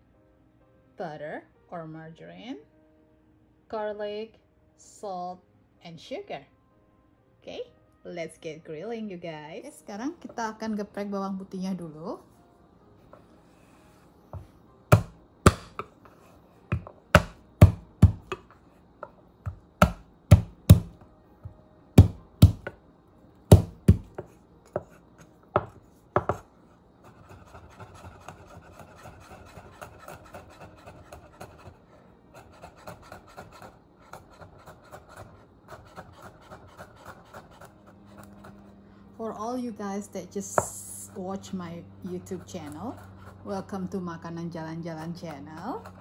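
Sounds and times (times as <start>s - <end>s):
cleaver chopping on wooden board: 14.9s - 15.9s, 16.7s - 18.6s, 19.4s - 21.0s, 22.0s - 22.8s, 23.5s - 24.9s, 25.6s - 26.4s.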